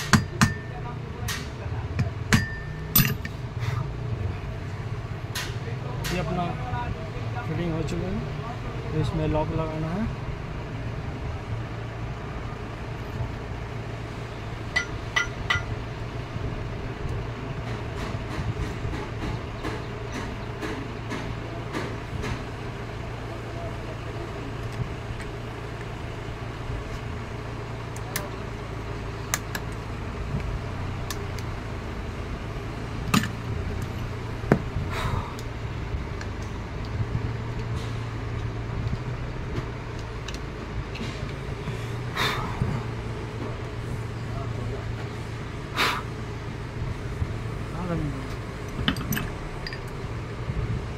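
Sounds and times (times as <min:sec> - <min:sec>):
steady low hum: 0:00.0 - 0:50.9
metallic clinks: 0:02.3 - 0:03.4, 0:14.7 - 0:15.8, 0:48.7 - 0:50.0.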